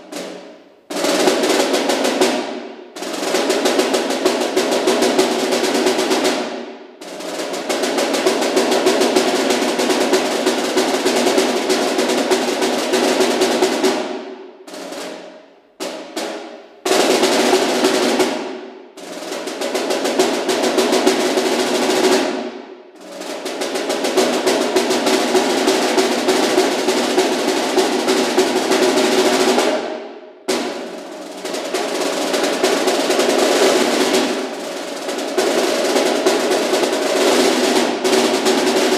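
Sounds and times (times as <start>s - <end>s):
snare drum rolls: 0.0s - 38.9s.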